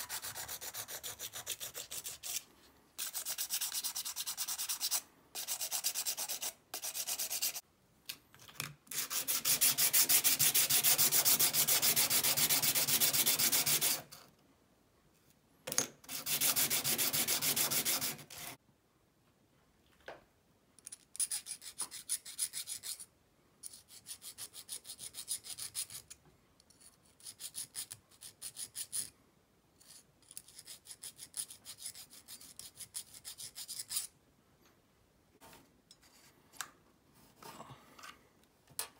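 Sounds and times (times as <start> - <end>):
sanding sponge rubbing on steel: 0.0 - 2.4, 3.0 - 7.6, 8.9 - 14.0, 16.1 - 18.6.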